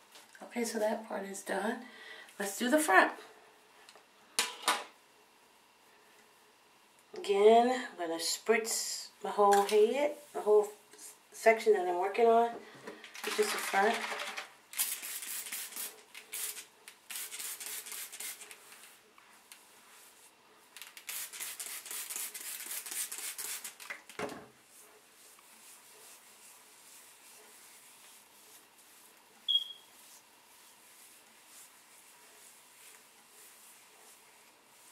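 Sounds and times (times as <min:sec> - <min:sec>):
comb rasping through hair: 0:14.8 - 0:23.9, 0:24.7 - 0:34.9.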